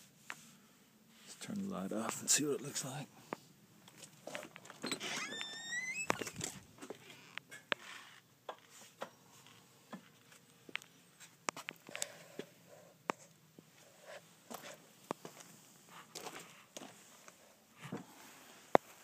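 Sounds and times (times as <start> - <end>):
short rising squeak: 4.8 - 6.4.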